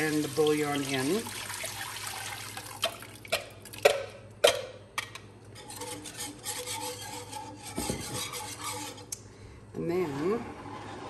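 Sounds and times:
liquid pouring into pan: 0:00.0 - 0:03.9.

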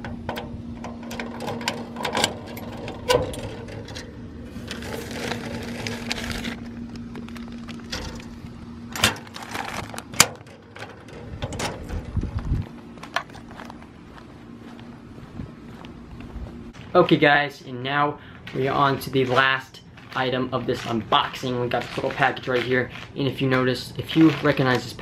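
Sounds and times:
metal mailbox door clanking: 0:00.0 - 0:04.2, 0:08.9 - 0:12.3
plastic package rustling: 0:03.4 - 0:08.4, 0:09.1 - 0:10.8.

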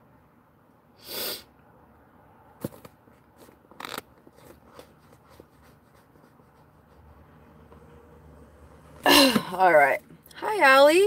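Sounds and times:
short hiss: 0:01.0 - 0:01.5.

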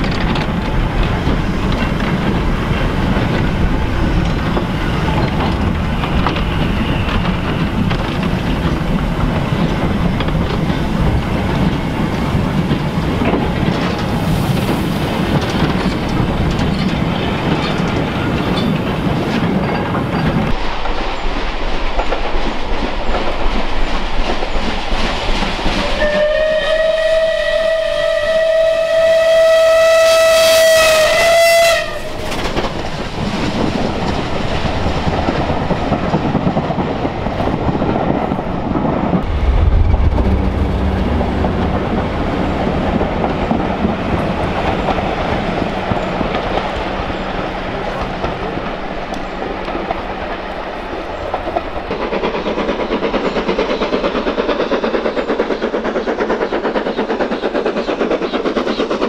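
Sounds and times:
wagon wheels clicking over rail joints: 0:00.0 - 0:14.2
train rumbling past: 0:00.0 - 0:59.0
steam locomotive whistle: 0:25.9 - 0:32.3.

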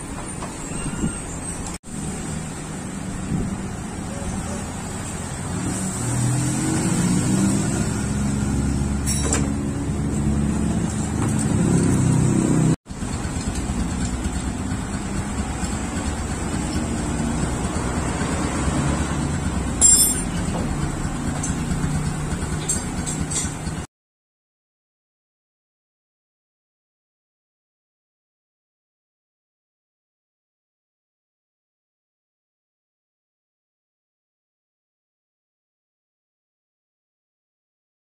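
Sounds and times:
motorcycle engine revving and idling: 0:01.9 - 0:23.9.

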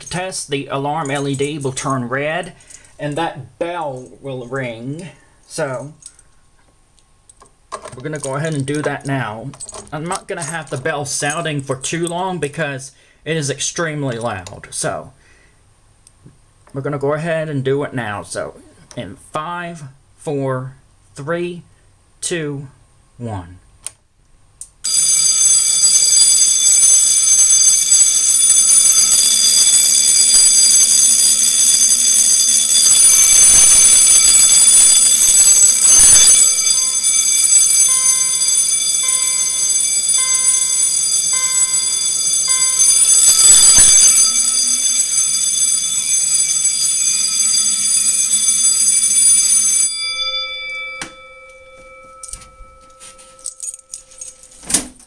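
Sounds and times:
fire alarm bell ringing: 0:01.0 - 0:01.4, 0:24.8 - 0:54.6.

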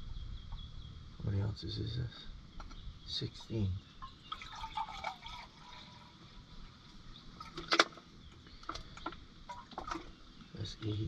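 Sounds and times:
water pouring: 0:04.2 - 0:06.2, 0:09.5 - 0:10.1.

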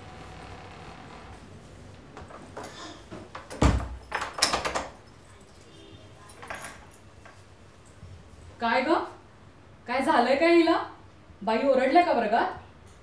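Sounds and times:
wooden door thudding shut: 0:03.5 - 0:04.0.

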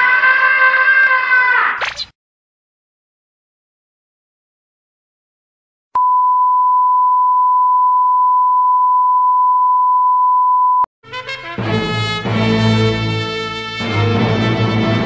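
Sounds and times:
steady electronic beep tone: 0:06.0 - 0:10.9
brass-led music: 0:11.0 - 0:15.0.

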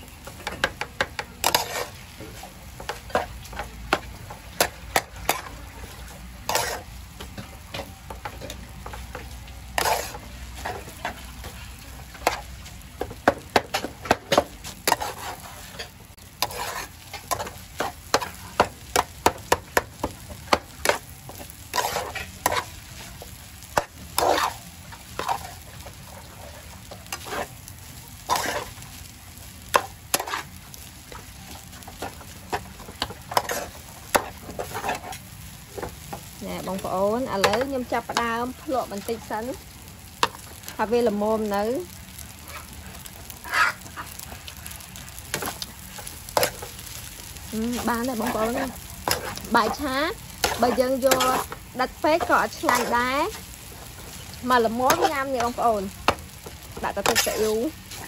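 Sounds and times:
rice sizzling: 0:00.0 - 0:58.0
metal ladle scraping a wok: 0:01.4 - 0:02.4, 0:06.4 - 0:06.9, 0:07.7 - 0:11.6, 0:14.8 - 0:18.4, 0:21.7 - 0:23.1, 0:56.9 - 0:58.0.

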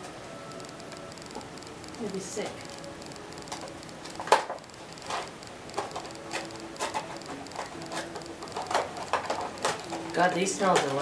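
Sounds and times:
gift wrap clicks and rustles: 0:02.7 - 0:11.0.

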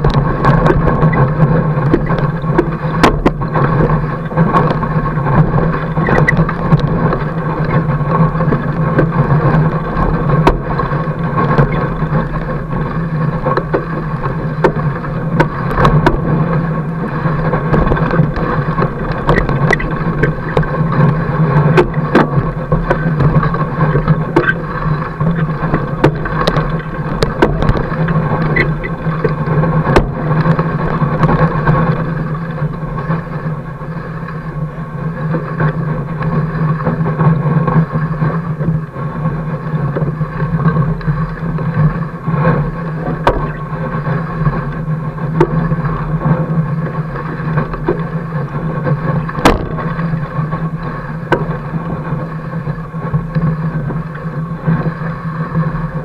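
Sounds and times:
knocks from bumps: 0:49.4 - 0:49.9.

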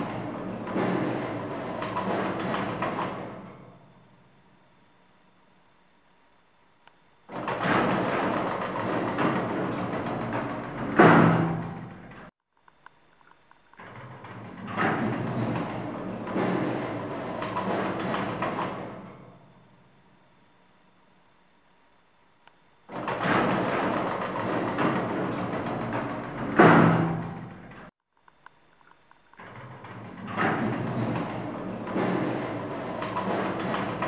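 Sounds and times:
lift doors banging shut: 0:00.0 - 0:03.8, 0:07.3 - 0:12.3, 0:13.8 - 0:19.4, 0:22.9 - 0:27.9, 0:29.4 - 0:34.0
lift door mechanism running: 0:00.0 - 0:04.5, 0:07.2 - 0:12.3, 0:13.7 - 0:20.1, 0:22.8 - 0:27.9, 0:29.3 - 0:34.0.

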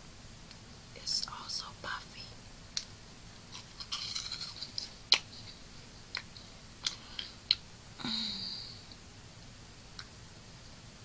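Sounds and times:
crunchy snack being chewed: 0:03.4 - 0:05.3.

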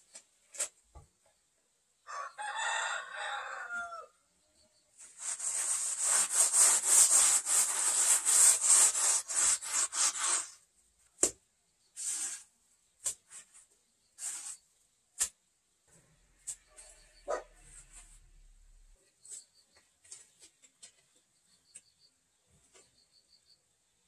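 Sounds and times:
scraping sand on stone: 0:05.0 - 0:10.6, 0:11.9 - 0:15.4.

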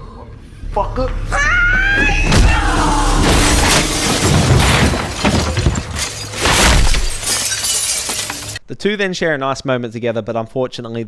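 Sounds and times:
falling glass and debris crashing: 0:03.0 - 0:08.6
window shattering: 0:03.1 - 0:08.6.

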